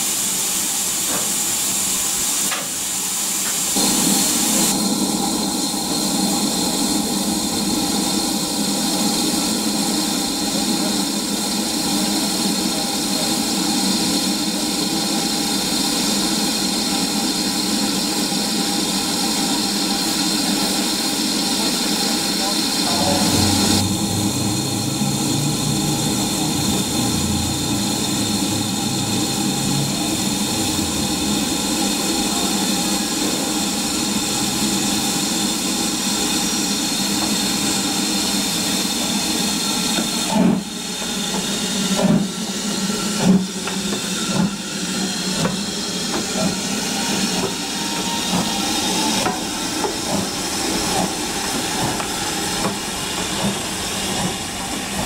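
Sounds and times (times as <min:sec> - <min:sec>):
steam locomotive hissing: 0:00.0 - 0:55.0
locomotive exhaust beats: 0:37.0 - 0:55.0.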